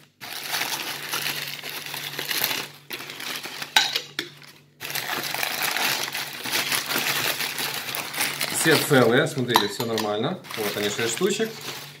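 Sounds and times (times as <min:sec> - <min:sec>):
paper rustling and crinkling: 0:00.0 - 0:12.0
glass cups clinking: 0:09.5 - 0:10.1.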